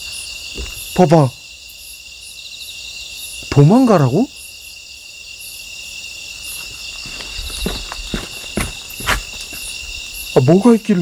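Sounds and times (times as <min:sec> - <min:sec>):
crickets and insects trilling: 0:00.0 - 0:11.0
footsteps through tall weeds: 0:06.5 - 0:10.1.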